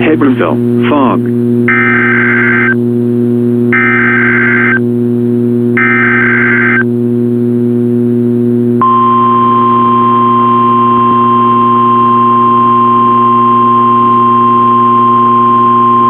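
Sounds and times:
low radio hum: 0.0s - 16.0s
steady alarm tone: 1.7s - 2.8s, 3.7s - 4.8s, 5.8s - 6.9s, 8.8s - 16.0s.

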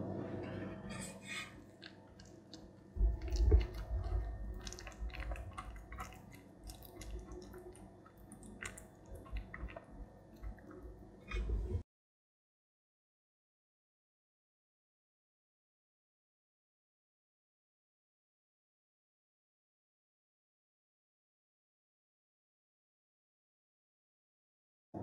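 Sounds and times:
spoon squishing sticky mix: 1.7s - 11.6s.

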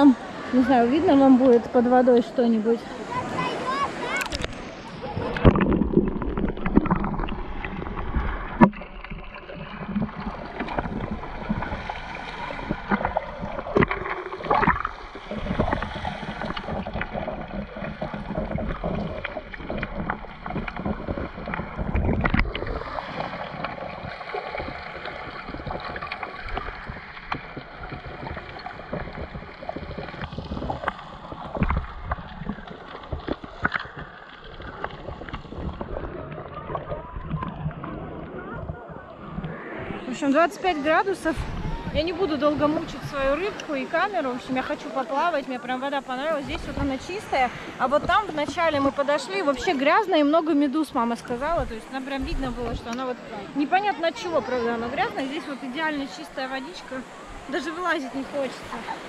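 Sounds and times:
underwater gurgling and sloshing: 0.0s - 59.0s
underwater knocks: 4.2s - 40.0s, 46.4s - 49.0s, 50.9s - 53.1s.

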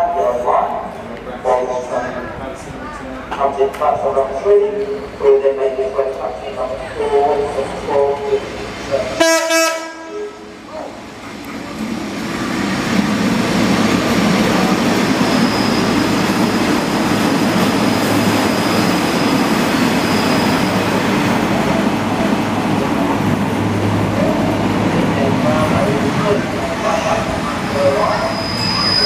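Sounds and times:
train engine and wheels rumbling: 0.0s - 29.0s
train horn blast: 9.2s - 10.4s
faint thin squeal: 15.2s - 16.1s, 18.5s - 20.9s, 28.1s - 29.0s.

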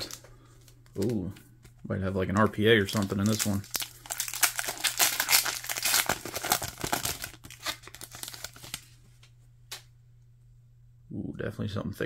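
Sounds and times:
foil wrapper tearing and crinkling: 0.0s - 0.2s, 2.2s - 9.0s.

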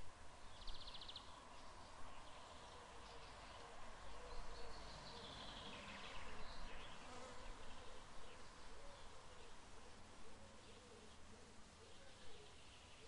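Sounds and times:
low background hiss: 0.0s - 13.0s
faint insect buzzing: 6.8s - 7.8s.

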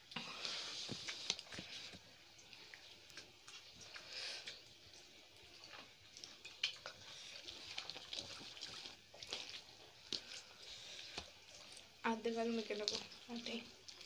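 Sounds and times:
hands squishing wet food: 0.0s - 14.0s.

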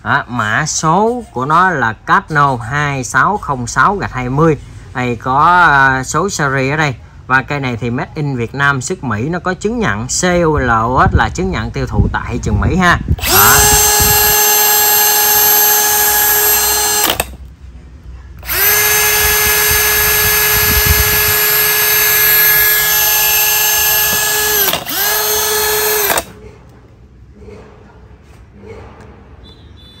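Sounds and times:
cordless drill whining: 13.2s - 17.4s, 18.4s - 26.3s.

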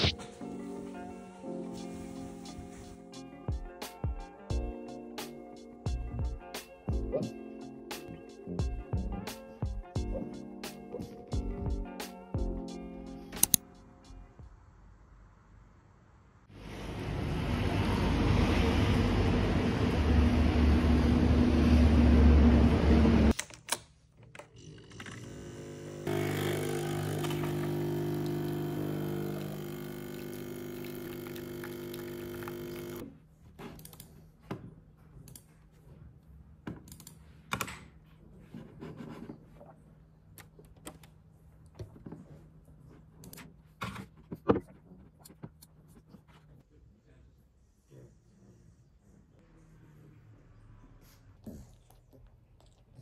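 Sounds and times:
coffee machine pump humming: 24.9s - 33.0s.

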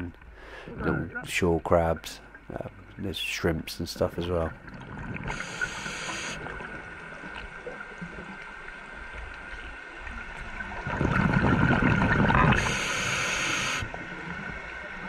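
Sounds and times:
gurgling rush of bubbles: 10.1s - 14.5s.

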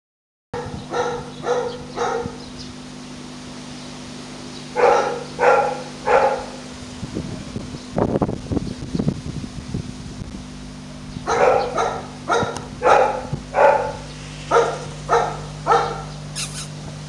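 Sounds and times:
puppy yapping: 0.6s - 2.4s, 4.8s - 6.6s, 11.3s - 16.8s
low hum: 0.8s - 16.6s.

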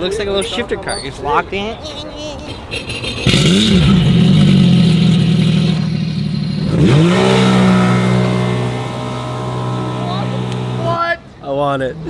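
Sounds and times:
jet ski engine revving: 3.2s - 11.2s.

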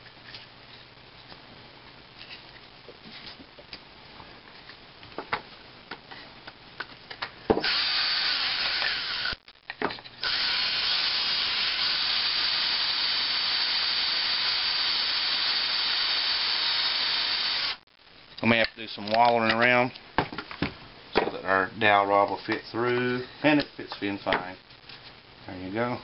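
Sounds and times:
drill boring through wood: 7.6s - 9.4s, 10.2s - 17.8s.

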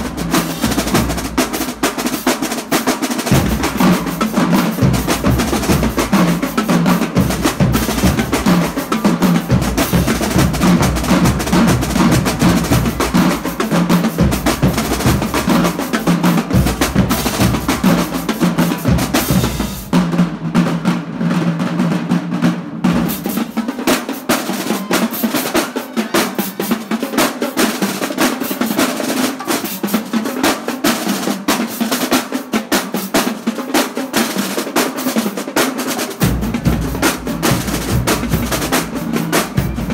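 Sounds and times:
snare drums: 0.0s - 39.9s
tenor drums: 0.0s - 39.9s
bass drums: 3.3s - 20.8s, 36.2s - 39.9s.

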